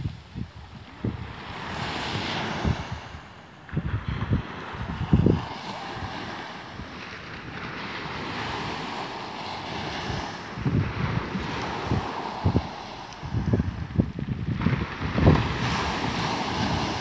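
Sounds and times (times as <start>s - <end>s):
waves washing on shingle: 0.0s - 17.0s
wind gusting on microphone: 0.0s - 17.0s.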